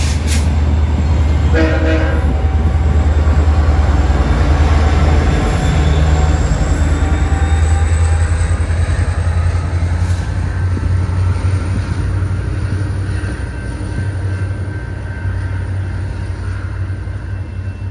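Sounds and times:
diesel locomotive engines humming: 0.0s - 17.9s.

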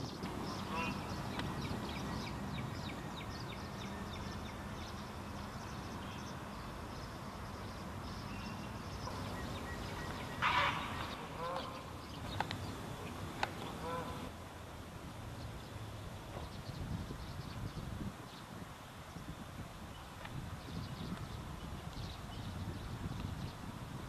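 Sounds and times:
heron croaks: 0.6s - 1.1s, 10.2s - 12.0s, 13.6s - 14.3s
heron squawking: 0.6s - 1.2s, 9.1s - 12.0s, 13.0s - 14.3s.

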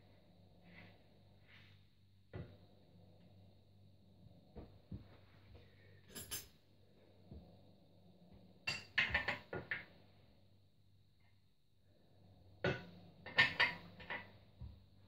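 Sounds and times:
metal headset parts clinking: 6.1s - 6.5s.

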